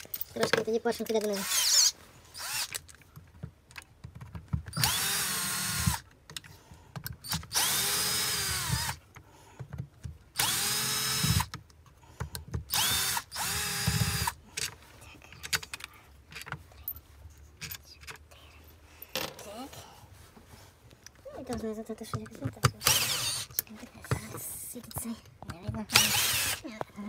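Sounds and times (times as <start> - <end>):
cordless drill-driver spinning: 1.2 - 2.8, 4.7 - 6.0, 7.2 - 9.0, 10.4 - 11.5, 12.7 - 14.4, 22.8 - 23.6, 25.9 - 26.6.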